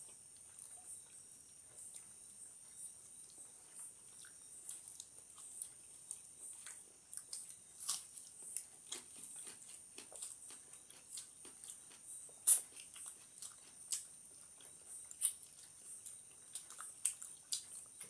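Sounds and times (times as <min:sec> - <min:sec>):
faint high-pitched whine: 0:00.0 - 0:18.0
wet chewing and lip smacks: 0:00.1 - 0:18.0.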